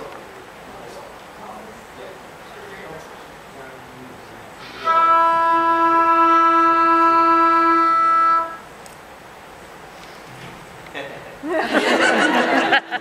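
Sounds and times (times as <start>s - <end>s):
wind instrument holding a note: 4.6s - 8.7s.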